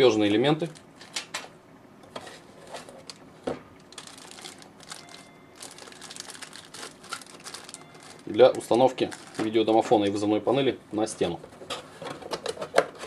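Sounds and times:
plastic packaging crinkling: 0:03.9 - 0:09.9.

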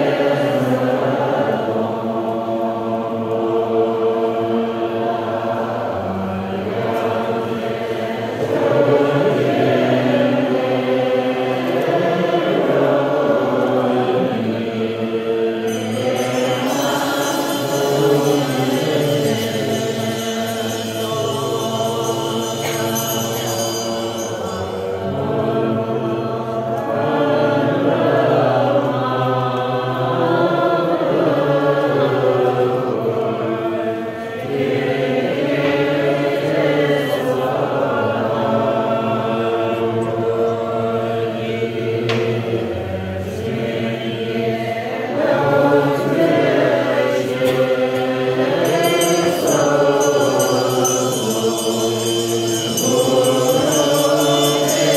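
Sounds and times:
group chanting prayers in unison: 0:00.0 - 0:54.9.

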